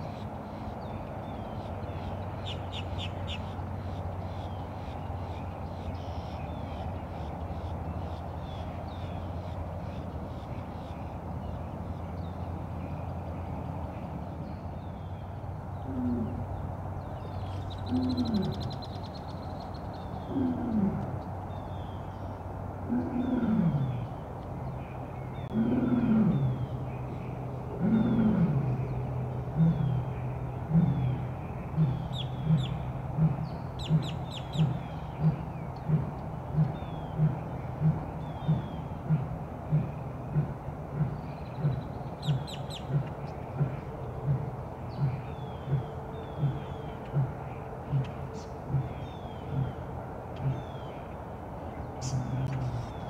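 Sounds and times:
small birds chirping: 0.0 - 53.0
steady low hum: 0.0 - 53.0
tiger calling: 27.7 - 30.1, 30.7 - 50.9.

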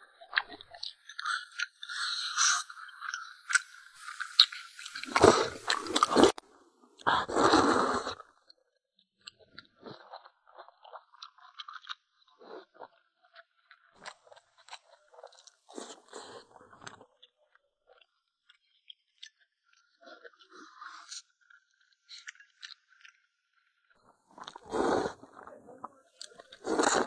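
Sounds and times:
person chewing crunchy food: 0.7 - 6.4, 7.0 - 8.2, 9.8 - 17.1, 24.3 - 25.5, 26.1 - 27.0.

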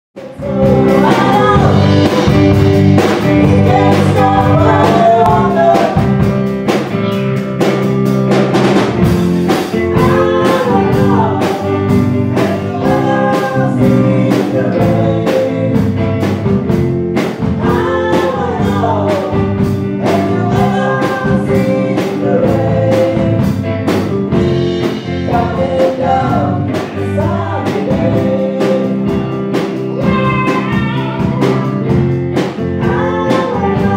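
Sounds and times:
drum kit steady beat: 0.2 - 33.9
electric guitar: 0.2 - 33.9
women singing into microphones: 0.3 - 6.1, 10.0 - 15.8, 17.6 - 23.4, 25.3 - 29.0, 32.8 - 33.9.

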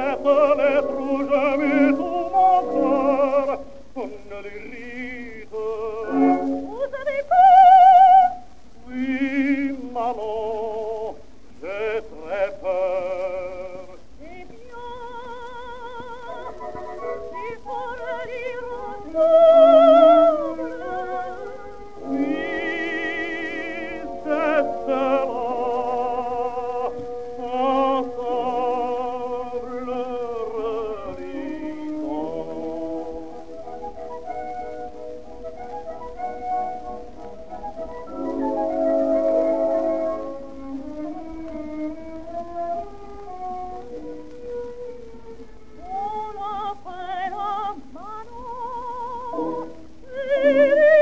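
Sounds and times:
operatic duet singing: 0.0 - 34.8, 45.0 - 51.0.

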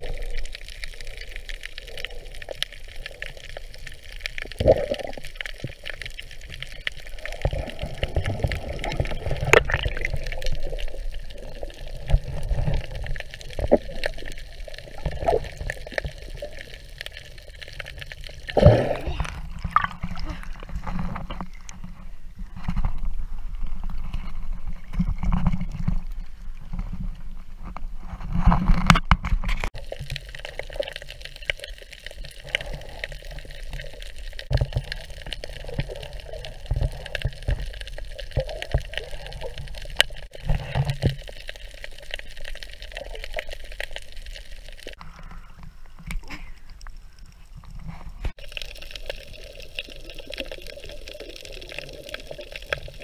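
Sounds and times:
sea water sloshing: 3.1 - 22.2.

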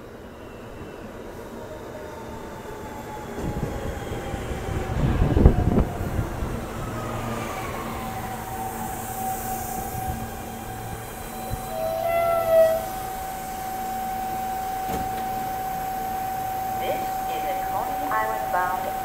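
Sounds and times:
train wheels rumbling on rails: 1.6 - 19.0
train brakes whining: 8.1 - 19.0.

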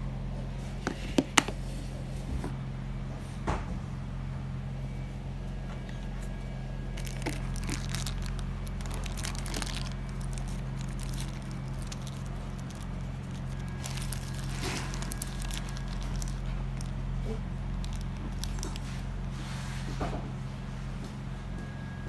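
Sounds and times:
low hum: 0.0 - 22.0
plastic case rustling and clicking: 7.0 - 16.9.

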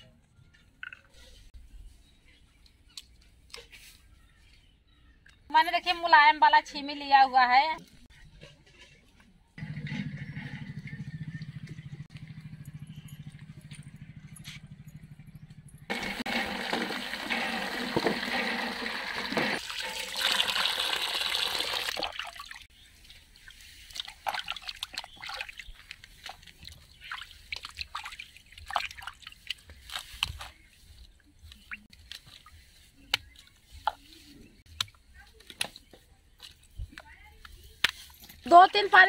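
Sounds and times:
water gushing into a tub: 15.9 - 22.6
hands splashing vegetables in water: 23.8 - 30.7.

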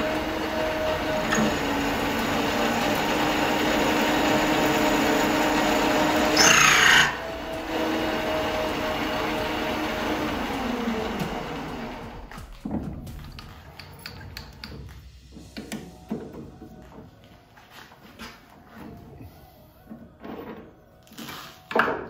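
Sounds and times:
lathe tool cutting steel: 0.0 - 12.3
lathe motor humming: 0.0 - 12.4.

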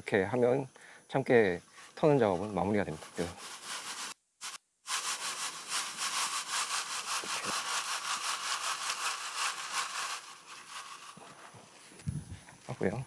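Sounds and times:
seeds rasping in shaken mesh sieve: 1.8 - 11.5
seed pattering into plastic tub: 3.0 - 11.4.

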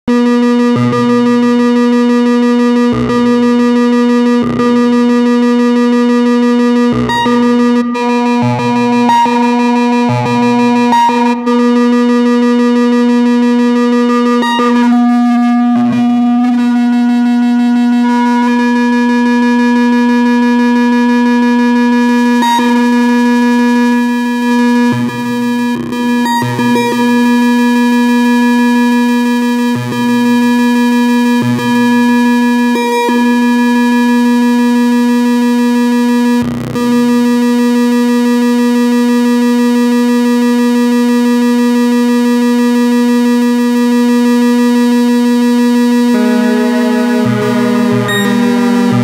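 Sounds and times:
synthesizer drone: 0.1 - 29.7, 42.3 - 49.0
low synth bass note: 0.2 - 27.3, 43.6 - 49.0.

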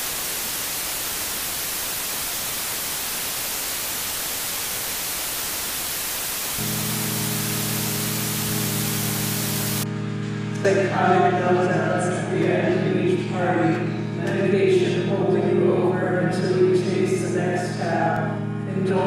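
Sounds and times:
static hiss: 0.0 - 9.8
low droning chord: 6.6 - 19.0.

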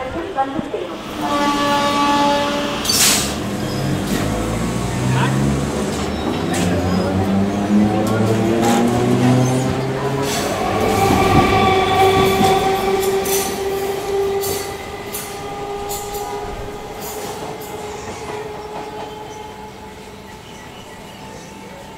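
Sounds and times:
train running on rails: 0.0 - 21.9.

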